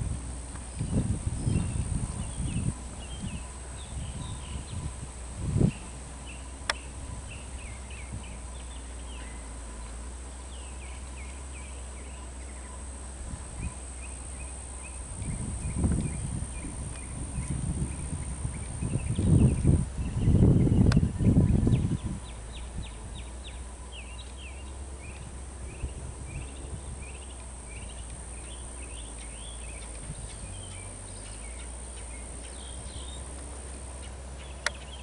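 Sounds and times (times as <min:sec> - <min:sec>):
low thumps and rumbles: 0:00.0 - 0:08.8, 0:14.9 - 0:23.3
high thin whine: 0:00.0 - 0:35.0
small birds chirping: 0:00.5 - 0:35.0.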